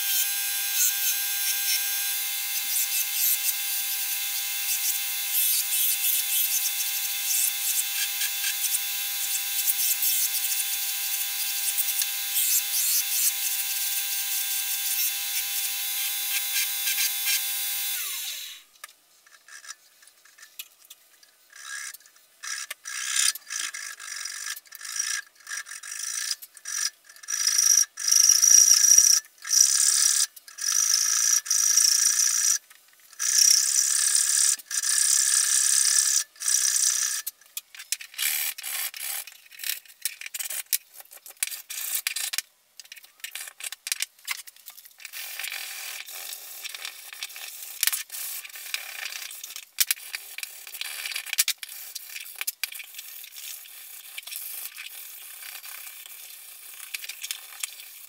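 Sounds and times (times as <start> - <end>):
belt grinder motor hum: 0.0 - 18.6
hacksaw cutting wood: 0.0 - 18.7.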